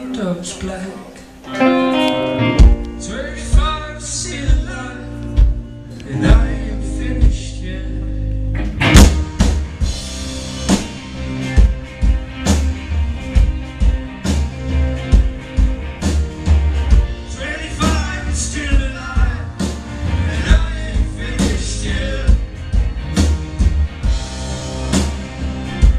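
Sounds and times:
live rock band playing: 1.3s - 25.9s.

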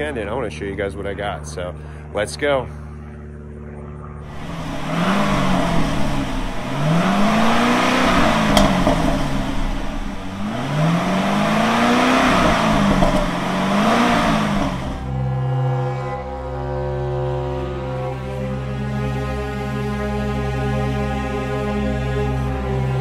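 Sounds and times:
car engine revving: 4.2s - 20.6s.

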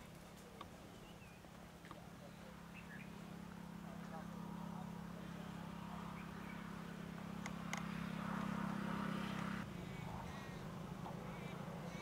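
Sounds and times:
vehicle engine idling: 2.0s - 12.0s.

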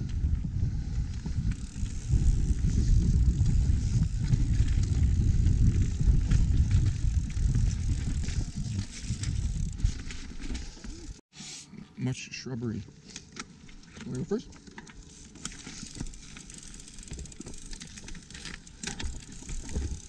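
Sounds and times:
bike rattles and clicks: 0.0s - 11.2s, 12.9s - 20.0s
bike tyres rumbling on dirt trail: 0.0s - 11.2s, 13.5s - 20.0s.

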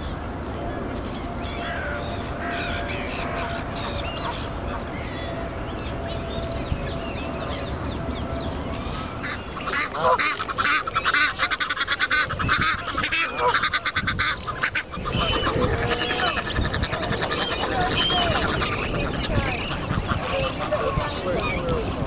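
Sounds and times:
geese honking: 1.4s - 22.0s
ducks quacking: 9.1s - 22.0s.

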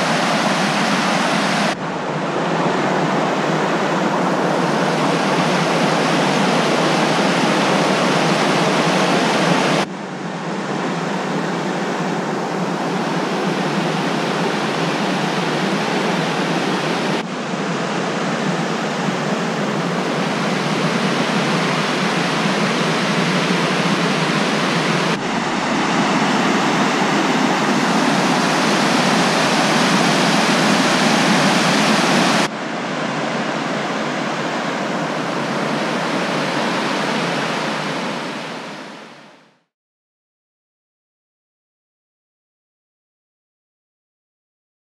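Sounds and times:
water rushing over rocks: 20.1s - 38.6s.

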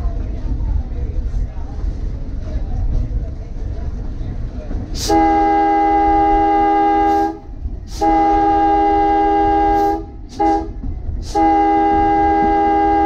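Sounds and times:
horn blasts: 5.0s - 13.0s.

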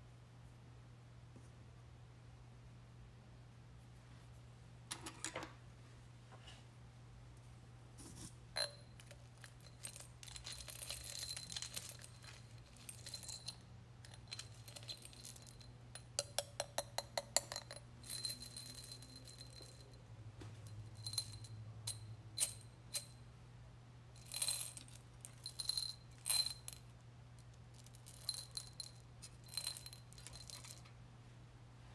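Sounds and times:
beads clicking against glass jar: 8.6s - 20.0s, 20.6s - 23.2s, 24.2s - 26.8s, 27.5s - 30.9s.

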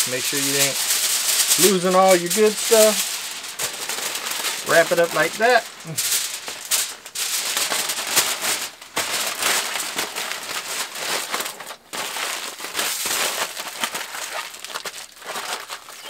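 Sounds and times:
aluminum foil crinkling: 0.0s - 16.0s.

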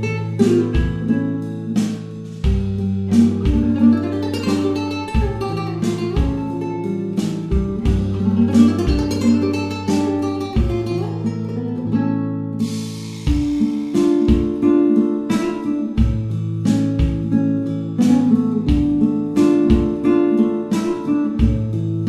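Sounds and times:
acoustic guitar tune: 0.0s - 22.0s.

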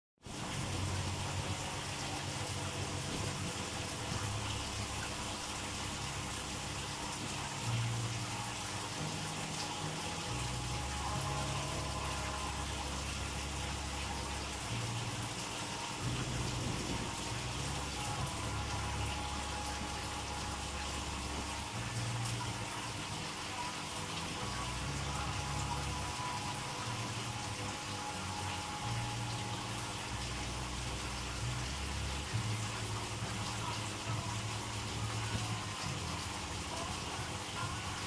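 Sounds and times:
running water: 0.2s - 38.0s
low rumble: 16.0s - 18.9s.

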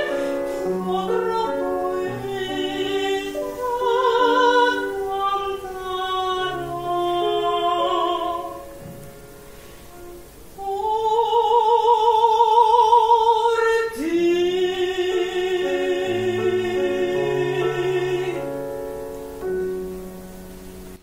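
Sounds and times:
woman singing classical with vibrato: 0.0s - 19.5s
grand piano chords: 0.0s - 21.0s.

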